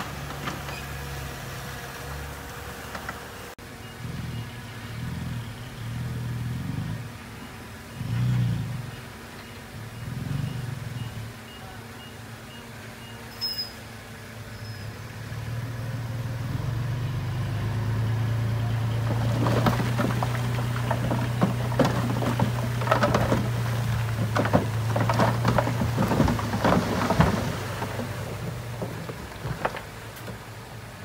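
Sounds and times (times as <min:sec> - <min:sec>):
rocks and dirt clattering: 0:00.0 - 0:01.8, 0:17.4 - 0:31.0
diesel truck engine running: 0:00.0 - 0:13.2, 0:13.8 - 0:31.0
faint regular beeping: 0:07.2 - 0:13.9.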